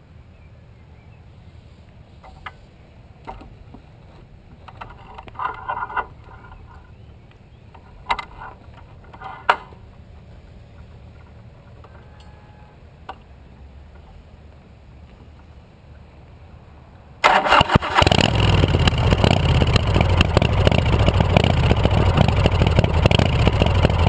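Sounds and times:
motorcycle rattling and clicking: 4.5 - 6.9, 17.2 - 24.0
steady low rumble: 13.3 - 24.0.

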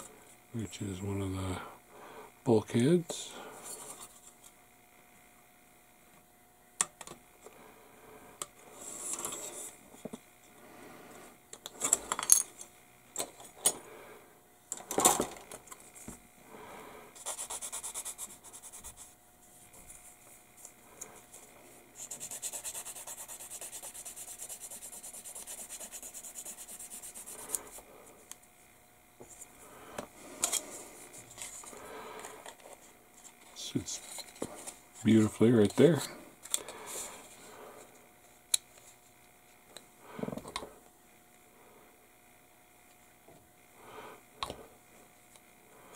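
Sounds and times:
sanding stick rubbing plastic: 17.2 - 19.1, 22.0 - 27.8.

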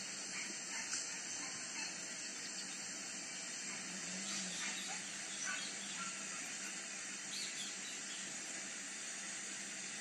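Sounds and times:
steady high hiss: 0.0 - 10.0
faint bird chirps: 0.3 - 8.4.

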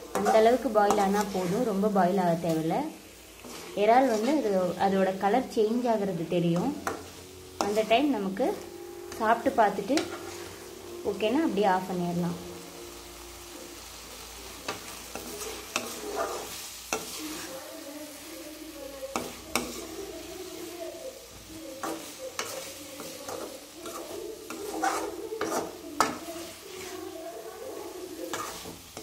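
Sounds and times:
metal spoon scraping pan: 0.0 - 2.7, 3.4 - 5.2, 6.4 - 11.3, 14.6 - 17.7, 18.9 - 20.7, 21.6 - 29.0
sauce sizzling: 0.0 - 29.0.

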